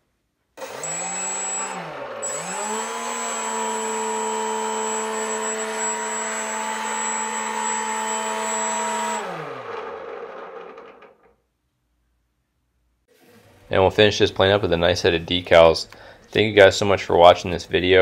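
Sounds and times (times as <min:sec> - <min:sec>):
electric motor and propeller whine: 0:00.6 - 0:11.2.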